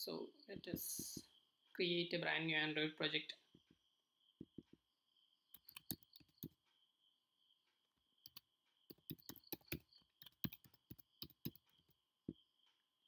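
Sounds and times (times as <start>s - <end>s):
faint keyboard typing: 5.5s - 6.7s, 7.7s - 12.8s.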